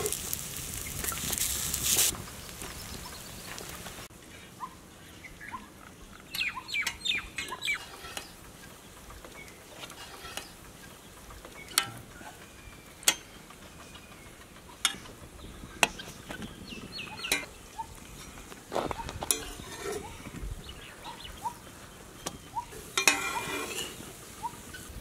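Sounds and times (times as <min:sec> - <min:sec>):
chickens clucking: 0:04.6 - 0:25.0
metal utensils clinking: 0:17.2 - 0:17.5, 0:19.2 - 0:20.2, 0:22.8 - 0:24.0.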